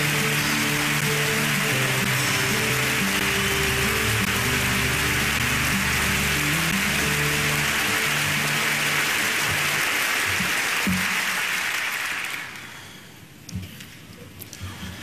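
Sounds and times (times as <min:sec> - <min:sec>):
walk-on music: 0:00.0 - 0:11.0
audience applause: 0:00.0 - 0:12.9.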